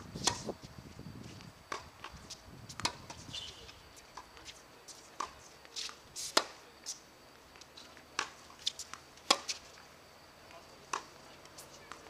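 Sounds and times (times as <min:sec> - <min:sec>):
tennis balls struck with rackets: 0:00.0 - 0:00.5, 0:01.7 - 0:02.1, 0:02.7 - 0:03.6, 0:05.2 - 0:06.6, 0:08.0 - 0:09.6, 0:10.8 - 0:12.0
tennis balls bouncing on hard court: 0:01.7 - 0:03.3, 0:10.9 - 0:11.2.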